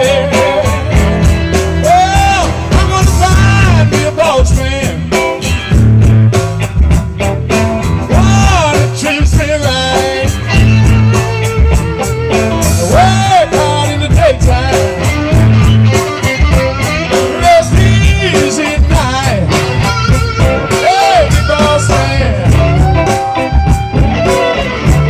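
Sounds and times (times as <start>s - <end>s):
person singing: 0.0s - 1.1s, 1.7s - 5.4s, 8.1s - 11.8s, 12.6s - 15.5s, 16.8s - 25.0s
blues band playing: 0.0s - 25.0s
electric guitar bending notes: 0.0s - 25.0s.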